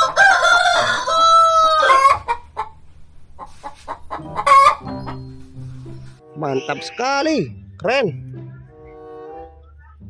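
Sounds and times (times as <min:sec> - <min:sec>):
rooster crowing: 0:00.0 - 0:02.4
hens clucking: 0:00.0 - 0:07.2.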